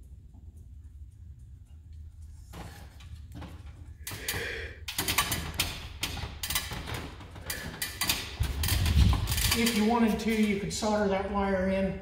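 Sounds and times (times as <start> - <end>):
knocks and clanks from metal ladder: 2.5 - 10.8.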